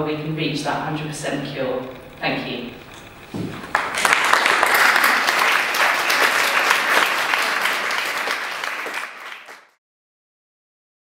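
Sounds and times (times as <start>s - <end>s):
audience applauding: 3.4s - 9.8s.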